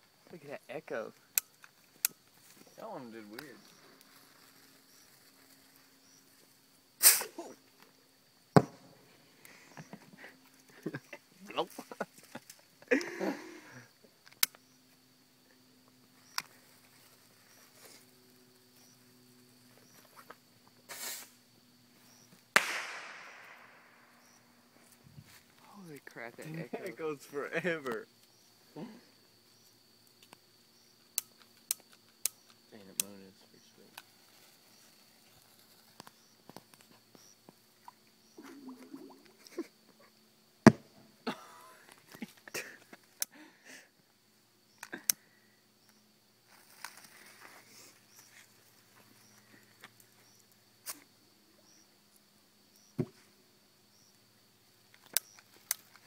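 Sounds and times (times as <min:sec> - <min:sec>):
short hiss: 0:07.0 - 0:07.6, 0:20.9 - 0:21.4
firework bang with echo: 0:22.6 - 0:23.8.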